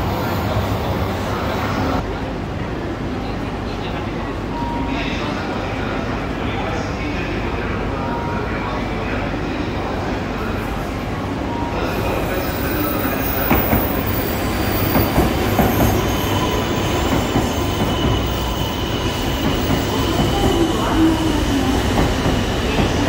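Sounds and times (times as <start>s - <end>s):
train rumbling: 10.6s - 23.0s
train knocks: 13.3s - 21.0s, 21.8s - 23.0s.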